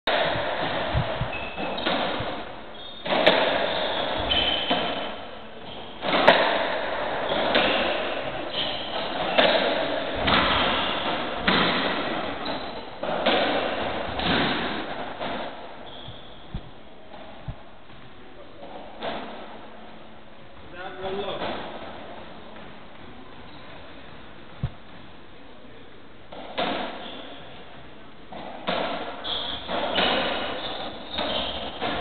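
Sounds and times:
rubber ball hitting rackets and walls: 0:00.1 - 0:17.6, 0:18.6 - 0:19.6, 0:21.2 - 0:22.7, 0:26.3 - 0:27.4, 0:28.3 - 0:32.0.

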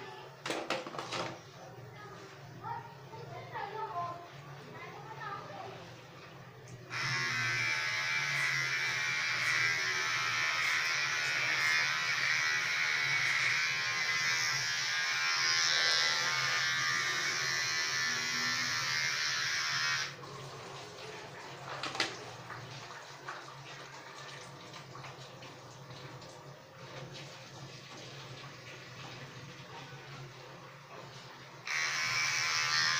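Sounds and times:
electric hair trimmer cutting hair: 0:06.9 - 0:20.2, 0:31.6 - 0:32.9.

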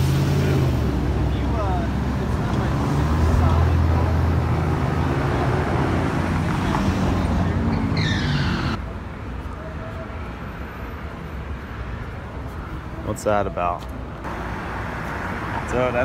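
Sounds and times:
cars driving past: 0:00.0 - 0:08.8, 0:14.0 - 0:16.0
high squeal falling in pitch: 0:07.4 - 0:08.8.

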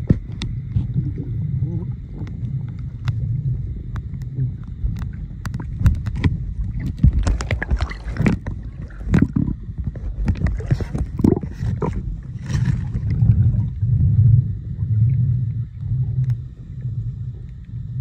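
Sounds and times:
muffled underwater water rumble: 0:00.0 - 0:18.0
underwater clicks and crackles: 0:00.0 - 0:18.0.

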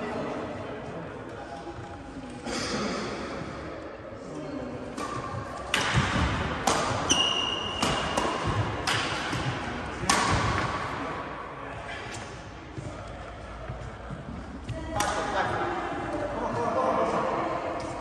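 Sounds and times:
rackets striking shuttlecock: 0:05.0 - 0:10.8.

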